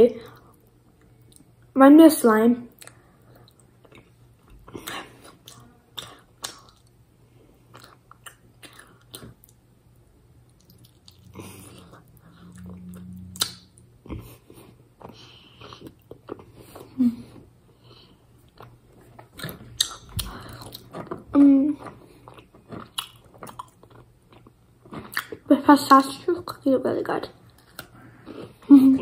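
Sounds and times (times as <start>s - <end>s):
mouth clicks and lip smacks: 2.7s - 6.9s, 13.3s - 13.7s, 19.3s - 21.1s
wet chewing: 7.7s - 9.6s, 10.4s - 16.9s, 17.8s - 25.5s
short low hum: 11.2s - 14.4s.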